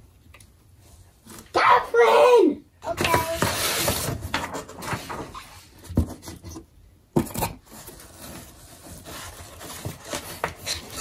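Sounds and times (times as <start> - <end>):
paper scraping and rustling: 3.0 - 6.7, 7.4 - 11.0.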